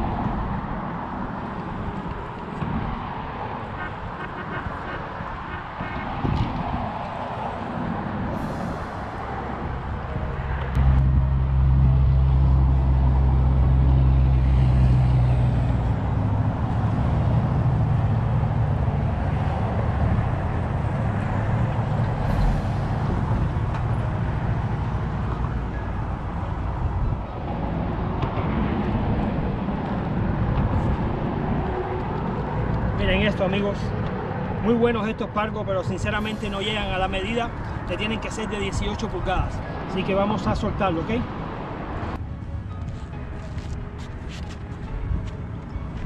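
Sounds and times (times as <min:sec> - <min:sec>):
vehicle engine hum: 0:00.0 - 0:36.8.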